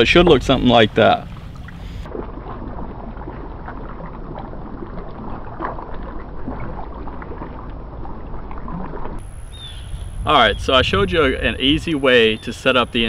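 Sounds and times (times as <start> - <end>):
water lapping: 0.0 - 13.0
wind buffeting microphone: 9.2 - 13.0.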